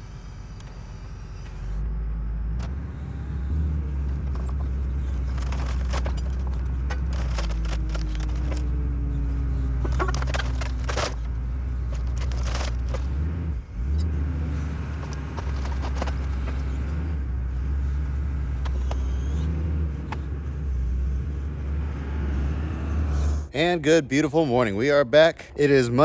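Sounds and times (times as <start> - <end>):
engine running low rumble: 0.0 - 26.0.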